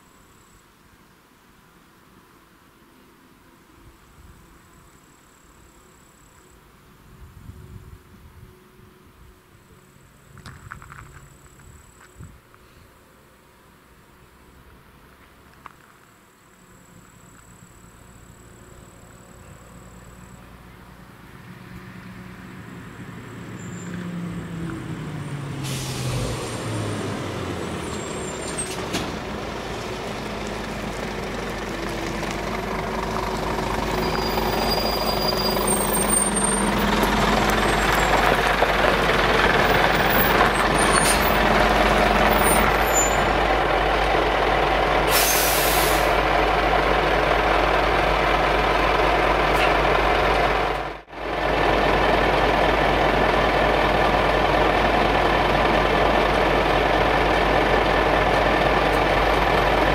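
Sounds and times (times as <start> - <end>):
lorry diesel engine: 3.5 - 59.9
air brakes hiss: 25.6 - 26.6, 45.0 - 46.2.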